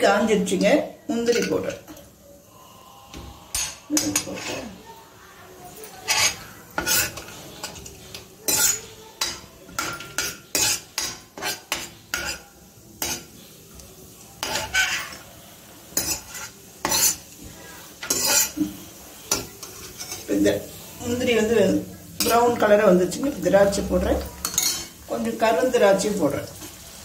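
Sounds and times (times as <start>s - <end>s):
frying fat sizzling: 0.0s - 27.0s
ladle scraping metal pan: 5.9s - 8.8s, 14.4s - 15.2s, 18.0s - 18.7s.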